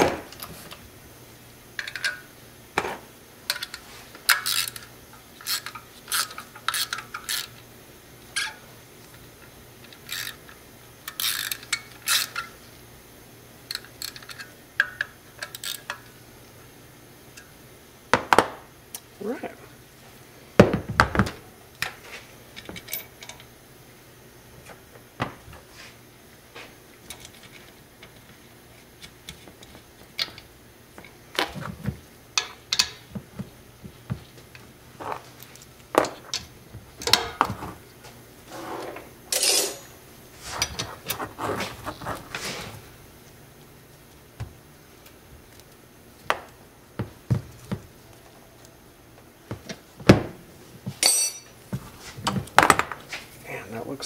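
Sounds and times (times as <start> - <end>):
metal parts and tools clanking: 1.8 - 2.3, 3.5 - 7.6, 22.6 - 23.5, 39.3 - 42.0, 51.0 - 51.6.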